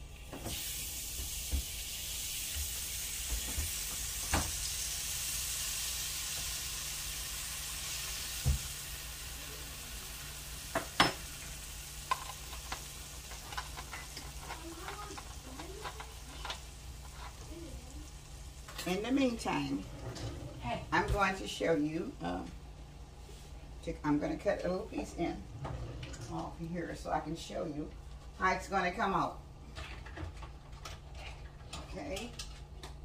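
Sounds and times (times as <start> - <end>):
liquid sizzling in frying pan: 0.0 - 19.9.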